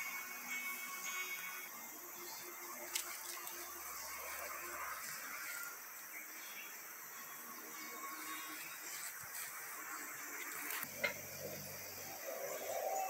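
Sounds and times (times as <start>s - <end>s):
hiss of insects: 0.0s - 13.0s
faint bird calls: 11.9s - 13.0s.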